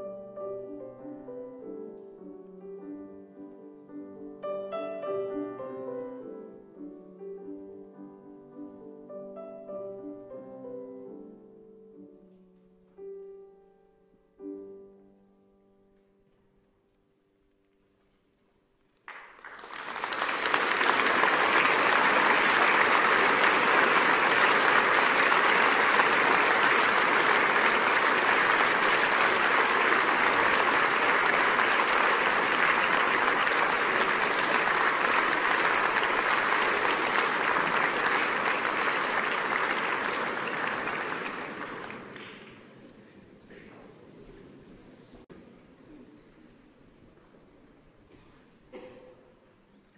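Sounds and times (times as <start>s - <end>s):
applause: 19.0s - 42.7s.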